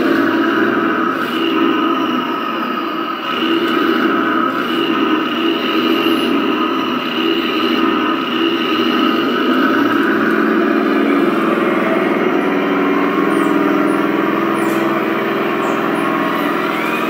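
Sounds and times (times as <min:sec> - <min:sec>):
high motor whine: 0:00.0 - 0:17.0
model tank engine drone: 0:00.0 - 0:17.0.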